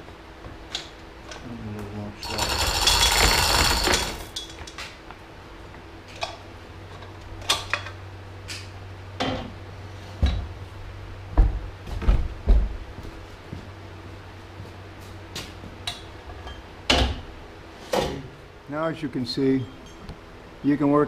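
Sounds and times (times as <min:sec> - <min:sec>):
steady low hum: 0:00.0 - 0:21.0
metal chain rattling and clinking: 0:02.2 - 0:04.6.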